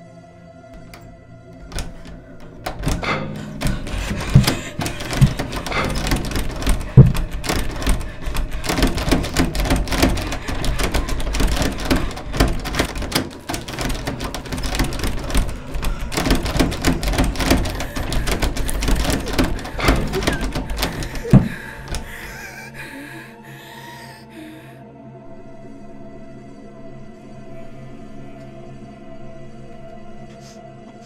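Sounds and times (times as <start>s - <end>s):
door thumping: 0.8s - 23.6s
door handle rattling: 0.8s - 23.7s.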